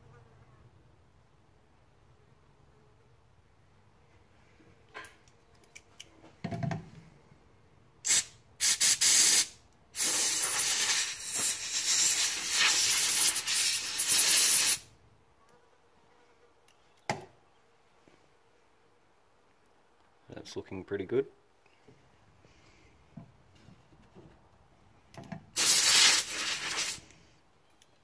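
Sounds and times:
parts being handled knocks: 6.3 - 6.9
aerosol can spraying: 8.1 - 14.8, 25.6 - 27.1.

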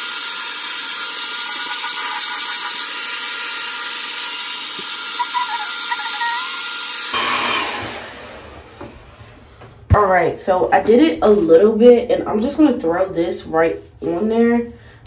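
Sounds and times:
hair dryer running: 4.7 - 9.0.

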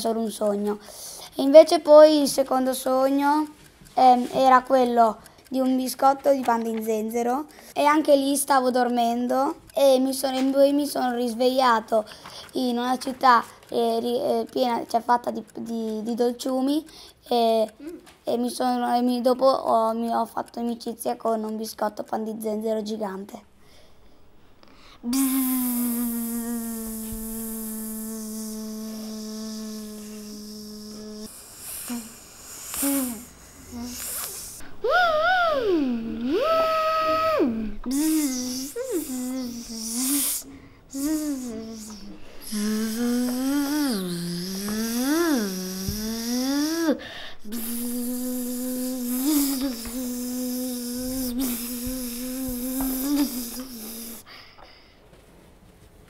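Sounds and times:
child making buzzing sound: 0.0 - 14.7, 25.0 - 54.4.

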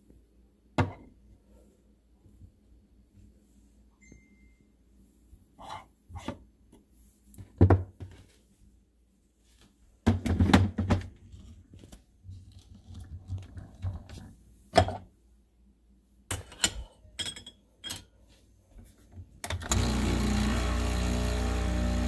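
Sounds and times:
espresso machine pump humming: 19.7 - 22.0.

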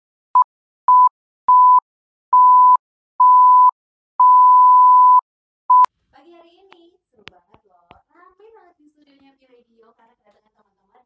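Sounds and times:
electronic beeps: 2.4 - 5.9.

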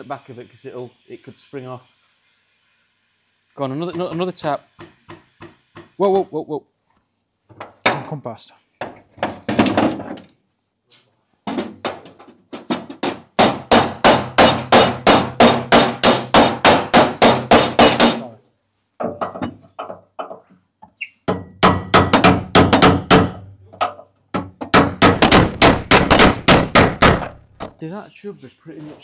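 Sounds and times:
hammer rapping on steel panel: 13.4 - 18.2, 21.6 - 23.4, 24.7 - 27.8.

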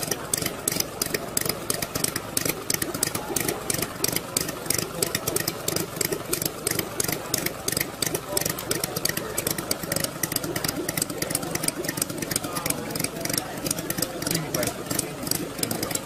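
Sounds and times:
model engine idling: 0.0 - 16.0.

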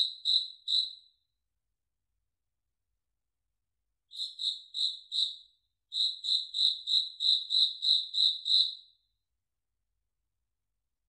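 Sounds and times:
cricket chirping: 0.0 - 1.0, 4.1 - 8.8.

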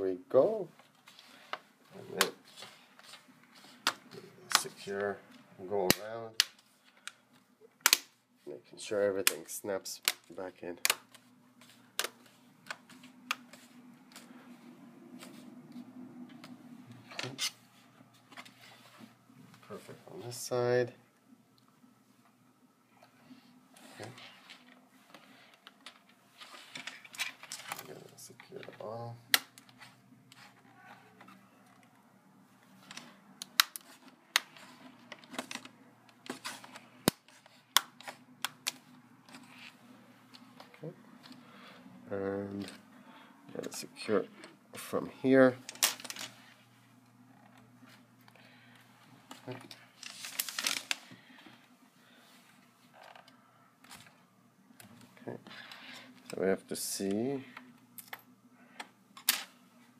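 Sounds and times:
low steady hum: 0.0 - 59.9
plastic clips snapping: 7.8 - 8.1
plastic handling rustles: 47.4 - 54.2.

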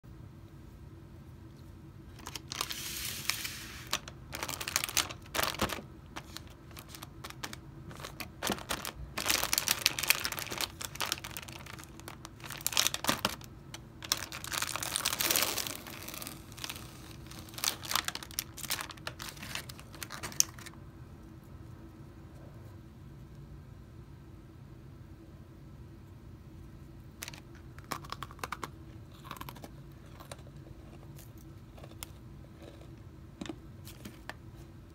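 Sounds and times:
plastic wrapper crinkling: 2.1 - 20.8, 27.2 - 30.4.

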